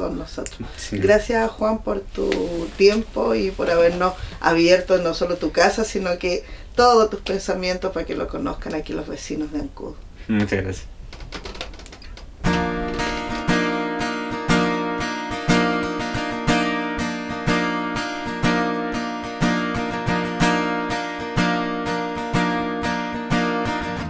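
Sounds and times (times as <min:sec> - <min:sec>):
strummed acoustic guitar: 0:12.4 - 0:24.0.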